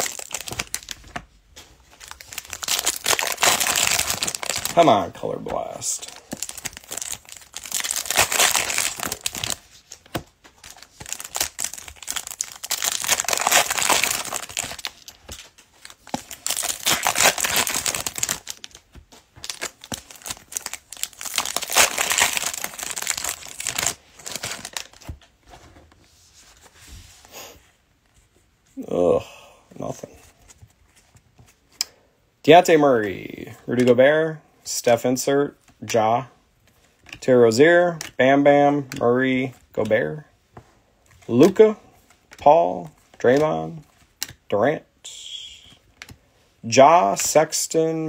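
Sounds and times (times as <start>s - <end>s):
foil wrappers tearing and crumpling: 0.0s - 1.0s, 2.0s - 4.9s, 6.2s - 9.6s, 10.6s - 18.8s, 19.4s - 25.0s.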